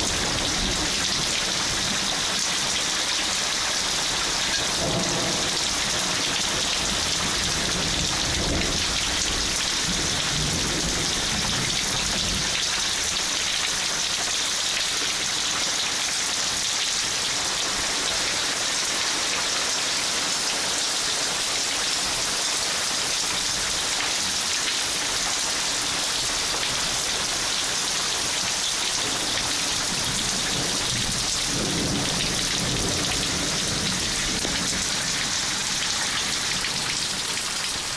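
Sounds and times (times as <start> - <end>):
heavy rain on foliage: 0.0 - 37.9
thunder rumble: 4.2 - 12.5, 29.8 - 37.2.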